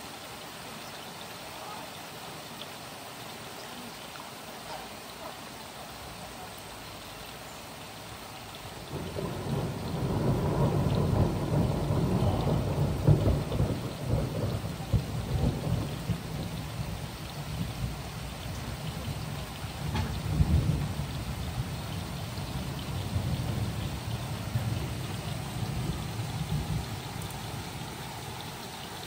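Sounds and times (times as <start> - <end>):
steady rain: 0.0 - 29.0
thunder rolling: 8.9 - 28.1.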